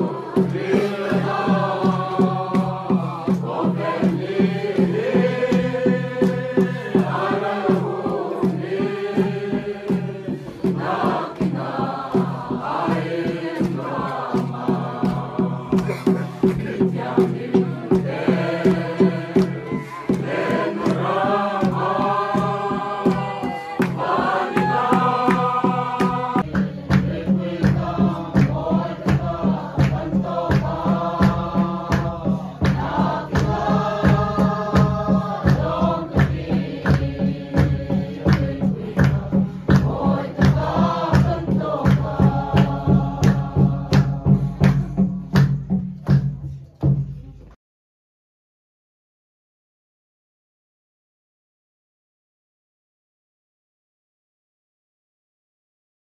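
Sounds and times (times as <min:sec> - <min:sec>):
group singing a hymn: 0:00.0 - 0:45.8
drum strokes: 0:00.0 - 0:47.5
hand claps: 0:10.4 - 0:47.1.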